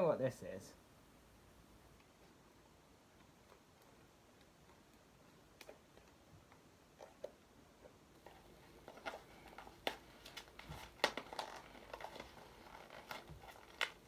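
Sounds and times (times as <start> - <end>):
packaging crinkling: 8.2 - 14.0.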